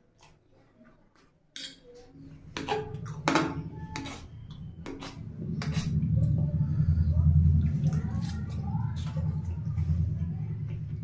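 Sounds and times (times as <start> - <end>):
fork scraping on steel plate: 1.6 - 2.0, 3.8 - 6.0.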